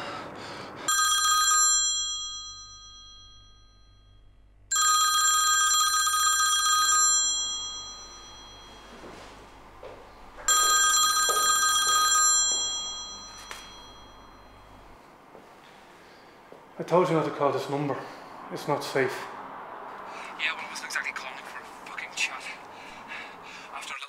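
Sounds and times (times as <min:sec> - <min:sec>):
phone bell ringtone: 0:00.9 - 0:09.6, 0:10.4 - 0:15.0.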